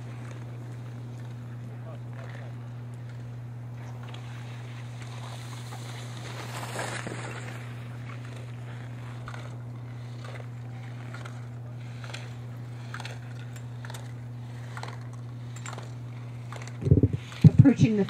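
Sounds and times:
steady low hum: 0:00.0 - 0:18.0
skis scraping hard snow: 0:04.2 - 0:09.3.

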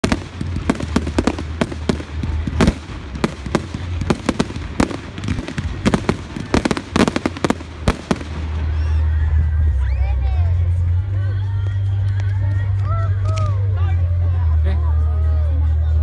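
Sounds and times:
fireworks bangs and pops: 0:00.0 - 0:08.7
steady low rumble: 0:00.0 - 0:16.0.

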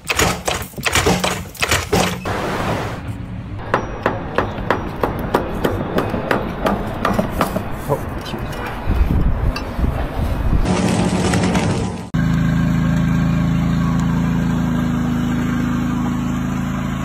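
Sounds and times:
hammer striking concrete: 0:00.0 - 0:02.2.

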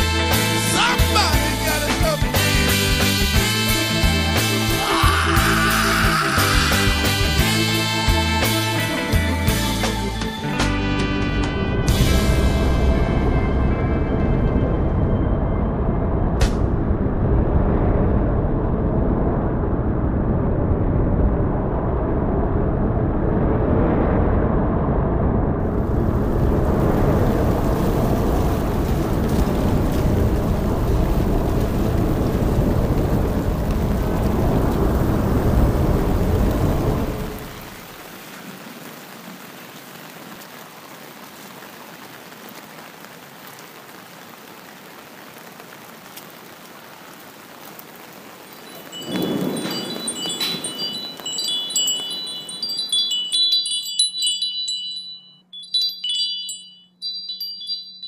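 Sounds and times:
loud low rumbling: 0:12.0 - 0:37.6
high tinkling chime tones: 0:48.7 - 0:58.0.

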